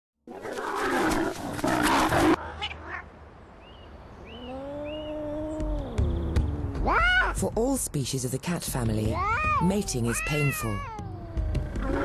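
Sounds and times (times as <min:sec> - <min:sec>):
lions growling: 0:00.3 - 0:02.7, 0:11.4 - 0:12.0
cat yowling: 0:06.8 - 0:07.4, 0:09.2 - 0:12.0.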